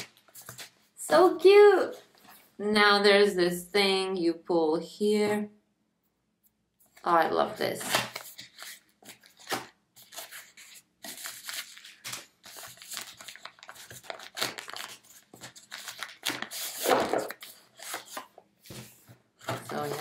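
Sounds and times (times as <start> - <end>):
plastic bag crinkling: 11.1 - 18.2.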